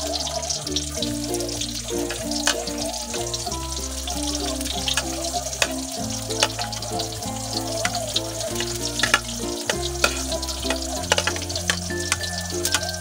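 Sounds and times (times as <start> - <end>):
background music: 0.0 - 13.0
garlic sizzling in hot oil: 0.0 - 13.0
metal spatula clinking on pan: 7.8 - 13.0.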